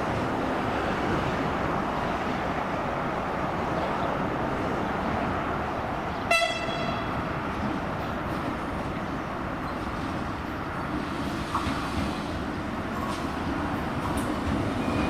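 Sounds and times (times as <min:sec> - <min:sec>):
short high train horn toot: 0:06.3 - 0:07.1
train wheels and traction running: 0:06.8 - 0:15.0.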